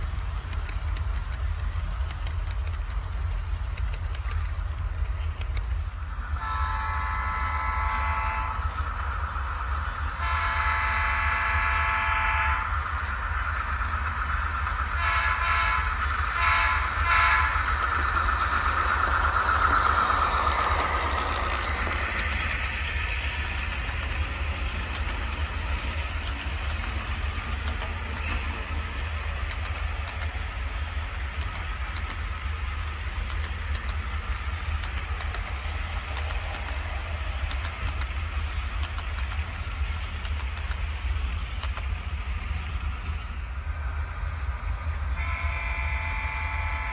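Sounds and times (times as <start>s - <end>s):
train running by: 0.0s - 46.9s
model train horn blasts: 6.4s - 8.7s, 10.2s - 12.7s, 15.0s - 17.6s, 45.2s - 46.9s.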